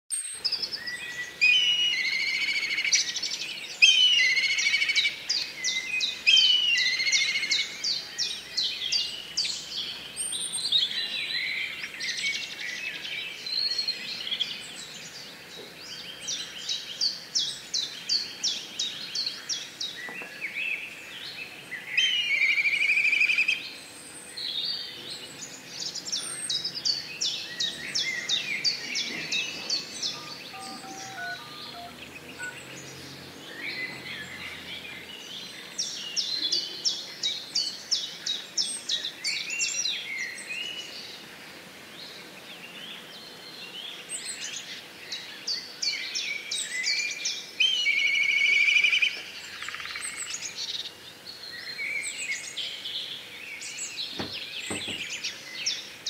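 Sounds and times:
kites calling with shrill trills: 29.2 - 32.8.

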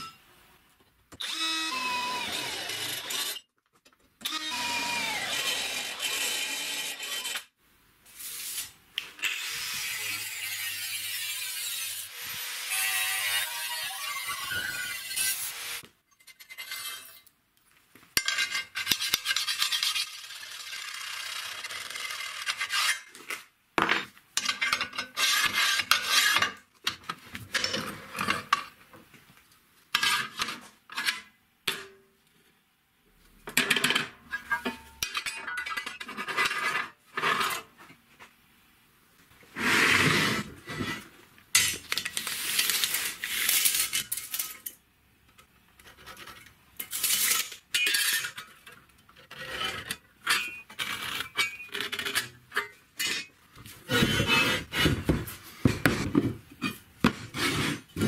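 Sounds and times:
angle grinder cutting steel: 1.2 - 3.4, 4.3 - 7.5, 9.2 - 15.8
metal rubbing and scraping: 49.2 - 55.3.

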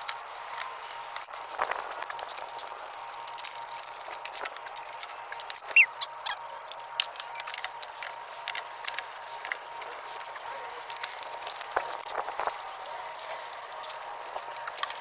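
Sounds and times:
short high-pitched chirp: 5.7 - 6.4.

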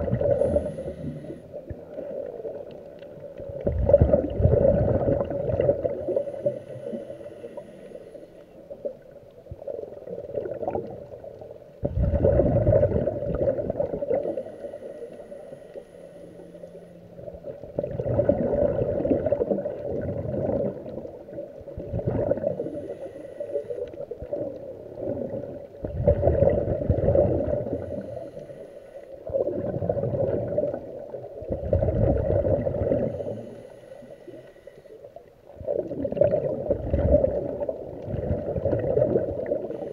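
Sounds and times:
underwater exhale bubbling: 0.0 - 39.9
regulator inhaling: 0.2 - 1.9, 6.1 - 8.6, 14.2 - 17.3, 22.6 - 24.0, 27.6 - 29.3, 33.1 - 35.2, 39.6 - 39.9.

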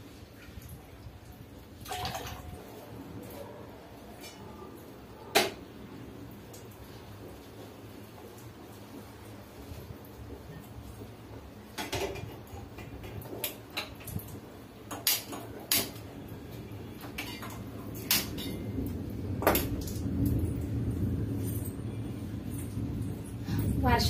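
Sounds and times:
metal pots and lids clanking: 17.0 - 18.8.

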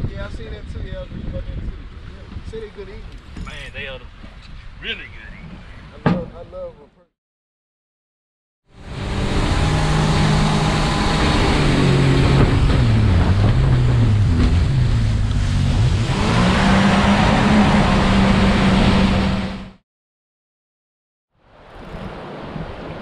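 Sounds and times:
wind: 0.0 - 7.1, 8.7 - 19.8, 21.3 - 23.0
boat motor running: 8.8 - 19.8
rushing water: 8.9 - 19.6, 21.4 - 23.0.

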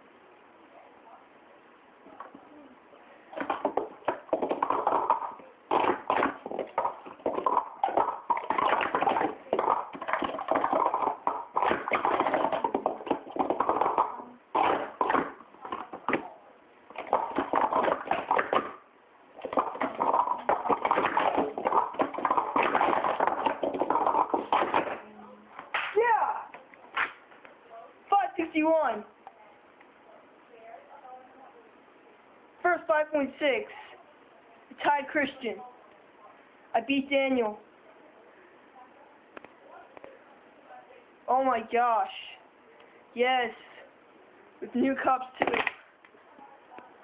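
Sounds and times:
plastic cups clattering: 3.3 - 16.3, 16.9 - 18.8, 19.4 - 25.0, 45.3 - 45.9.

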